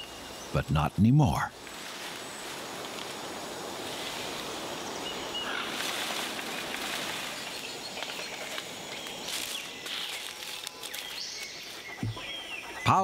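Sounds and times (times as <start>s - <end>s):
forest noise hiss: 0.0s - 13.0s
footsteps in dry leaves: 5.4s - 12.0s.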